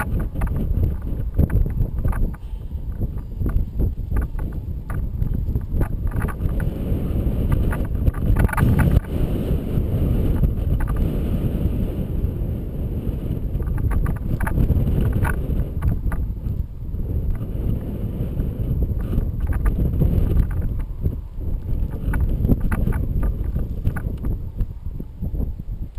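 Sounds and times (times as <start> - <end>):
wind buffeting microphone: 0.0 - 25.9.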